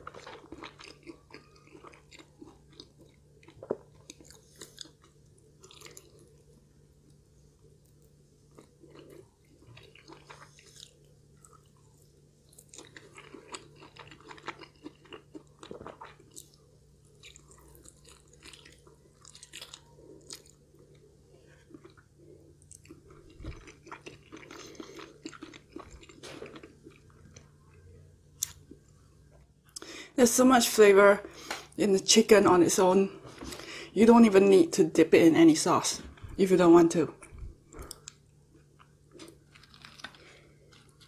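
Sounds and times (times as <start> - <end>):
person chewing crispy chicken: 0.0 - 7.2, 8.4 - 27.6, 37.2 - 41.0.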